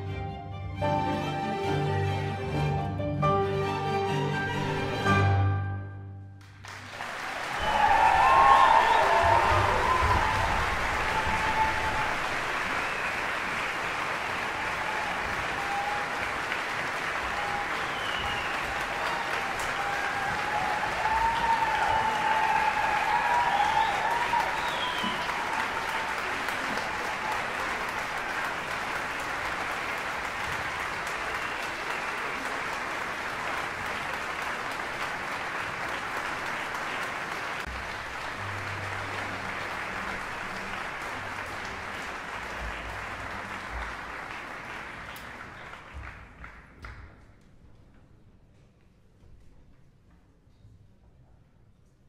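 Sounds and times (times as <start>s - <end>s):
audience applauding: 6.4s - 47.3s
audience cheering: 6.7s - 45.0s.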